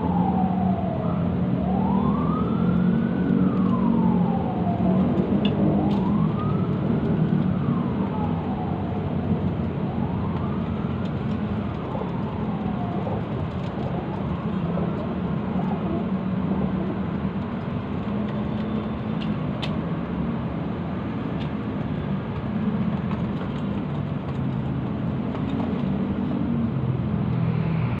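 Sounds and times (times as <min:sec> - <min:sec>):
siren wailing: 0:00.0 - 0:17.4.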